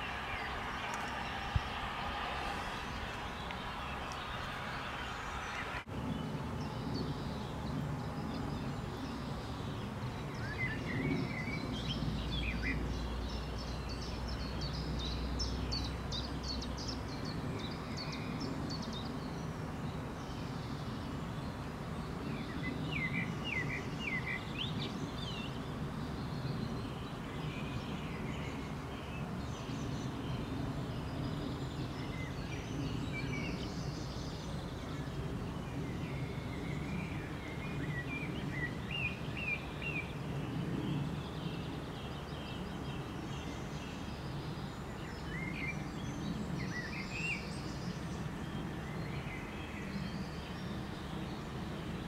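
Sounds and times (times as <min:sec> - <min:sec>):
low background rumble: 0:00.0 - 0:10.4
small birds chirping: 0:00.0 - 0:52.0.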